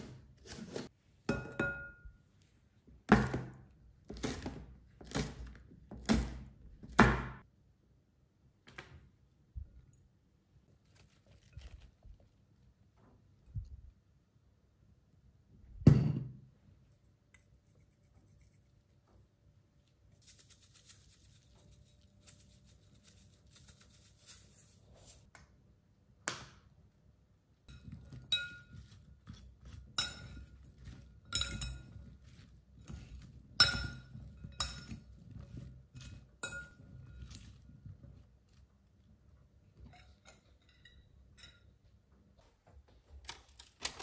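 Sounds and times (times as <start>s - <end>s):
vegetables rustling: 10.7s - 12.6s
metal utensils clinking on bowl: 27.7s - 37.6s, 39.8s - 41.7s.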